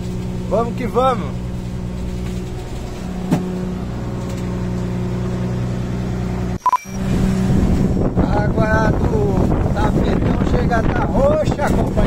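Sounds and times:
boat engine humming: 0:00.0 - 0:12.0
short beep: 0:06.6 - 0:07.0.

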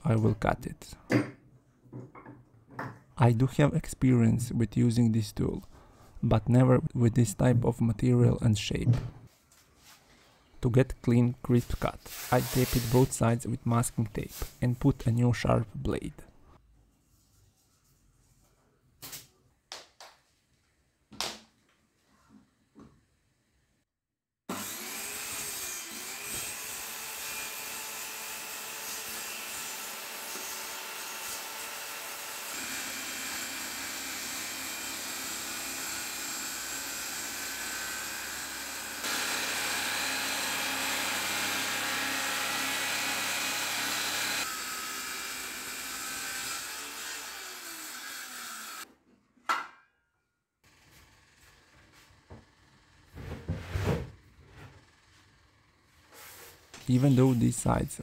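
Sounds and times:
circular saw cutting board: 0:12.0 - 0:13.2, 0:24.5 - 0:48.9.

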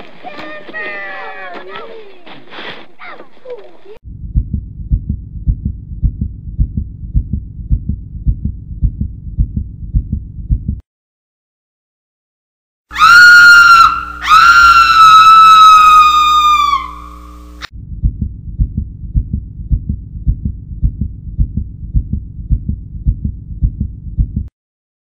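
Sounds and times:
faint hum: 0:03.0 - 0:10.8, 0:12.9 - 0:24.5
heartbeat thumping: 0:04.0 - 0:10.8, 0:17.8 - 0:24.5.

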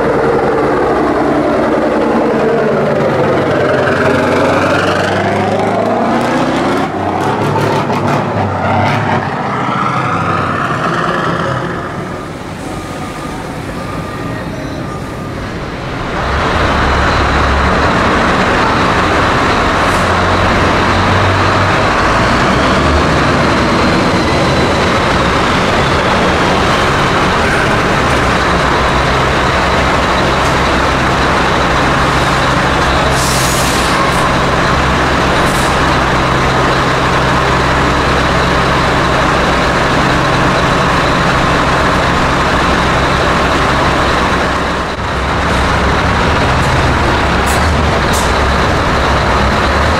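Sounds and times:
truck engine idling in tunnel: 0:00.0 - 0:06.0, 0:09.9 - 0:49.9
air brake hiss: 0:33.2 - 0:34.0.

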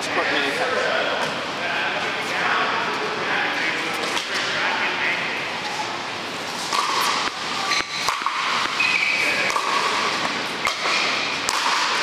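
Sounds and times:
room noise hiss: 0:00.0 - 0:12.0
shoes squeaking on court floor: 0:05.6 - 0:11.2.

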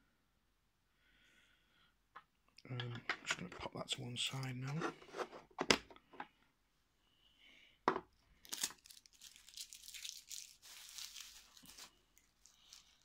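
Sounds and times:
packaging rustling and crinkling: 0:08.4 - 0:13.0.

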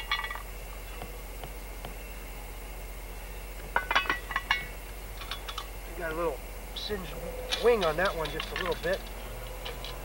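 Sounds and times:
metal clinking on iron lid: 0:03.8 - 0:05.7.

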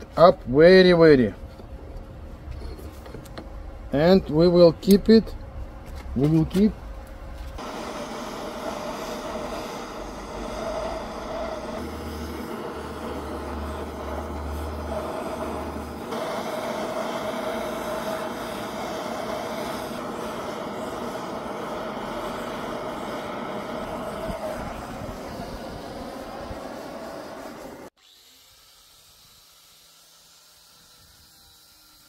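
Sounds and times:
heating torch hissing: 0:07.6 - 0:32.0.

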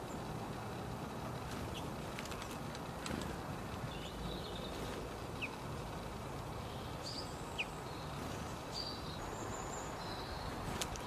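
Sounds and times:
low background hiss: 0:00.0 - 0:11.0
songbirds chirping: 0:00.0 - 0:11.0.

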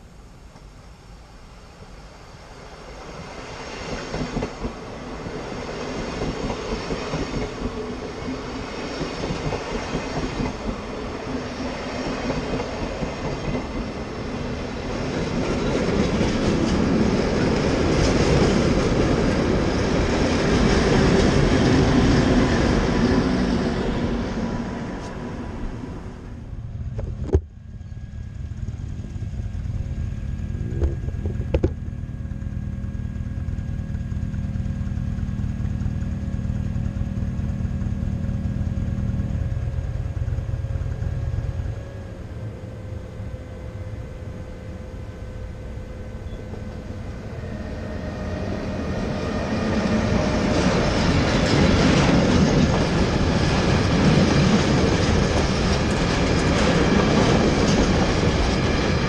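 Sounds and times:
train wheels rattling on rails: 0:03.0 - 0:26.0, 0:43.8 - 0:59.0.

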